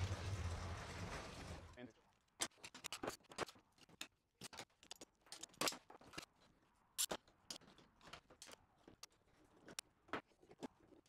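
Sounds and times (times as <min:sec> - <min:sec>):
clamps clicking and knocking: 0:02.4 - 0:06.3, 0:07.0 - 0:11.0.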